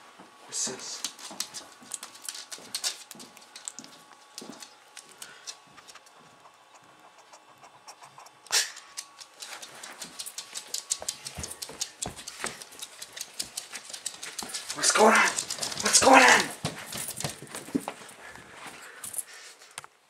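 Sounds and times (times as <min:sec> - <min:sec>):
dog claws clicking on wooden floor: 0:00.9 - 0:06.2, 0:08.7 - 0:18.1.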